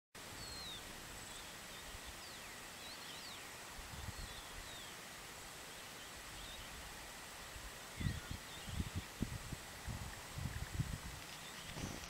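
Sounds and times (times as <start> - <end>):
bird chirps and whistles: 0.4 - 0.8, 8.0 - 9.0.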